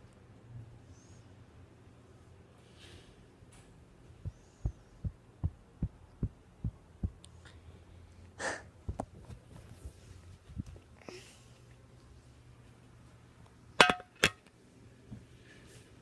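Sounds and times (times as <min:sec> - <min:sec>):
breathy huff: 0:08.4 - 0:08.8.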